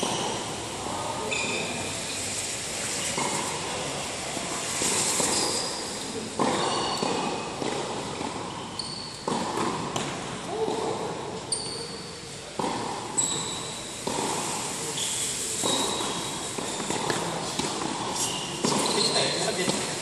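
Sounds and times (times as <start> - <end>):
shoes squeaking on court: 0.0 - 0.6, 1.2 - 3.6, 4.6 - 10.8, 11.4 - 20.0
tennis ball bouncing: 3.0 - 3.6, 4.4 - 20.0
racket striking tennis ball: 4.8 - 8.6, 9.2 - 11.2, 12.6 - 14.7, 15.6 - 20.0.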